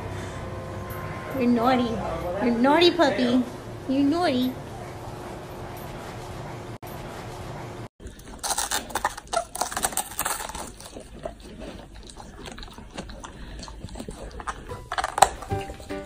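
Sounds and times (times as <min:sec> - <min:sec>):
dog chewing cabbage: 0:08.0 - 0:16.0.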